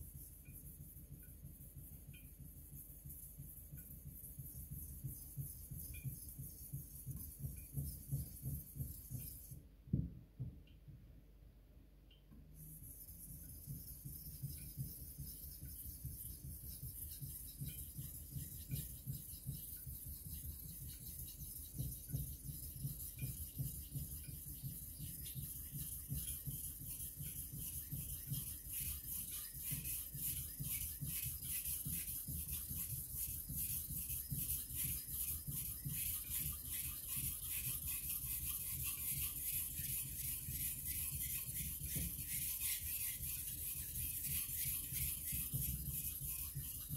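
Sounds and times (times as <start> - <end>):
knife scraping on whetstone: 33.6 - 46.9.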